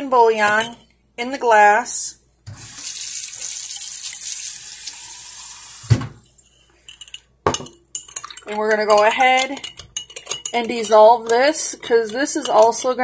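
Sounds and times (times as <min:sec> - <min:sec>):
kitchen tap running: 0:02.5 - 0:06.1.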